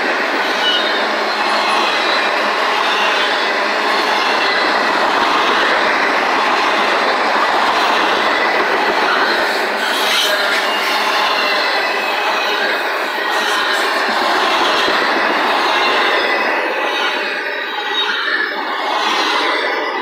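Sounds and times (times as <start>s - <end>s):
freight train wheels on rails: 0.0s - 20.0s.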